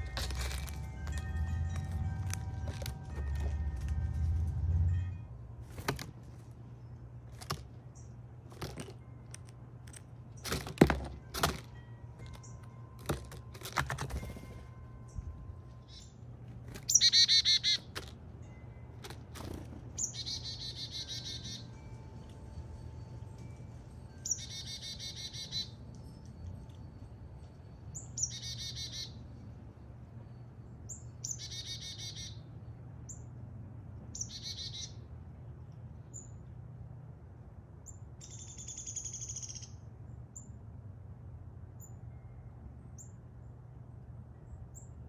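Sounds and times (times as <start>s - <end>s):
high rapid bird calls: 16.8s - 17.9s, 20.0s - 21.8s.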